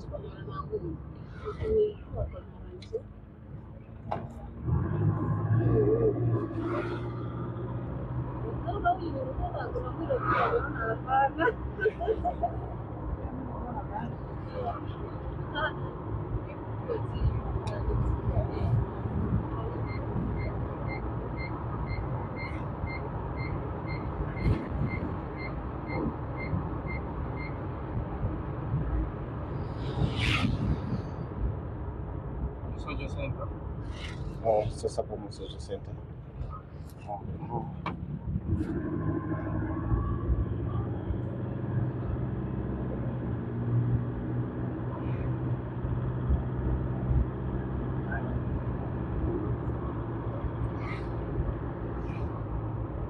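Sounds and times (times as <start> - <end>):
vehicle rumble: 0.0 - 53.0
vehicle warning beeper: 19.8 - 27.6.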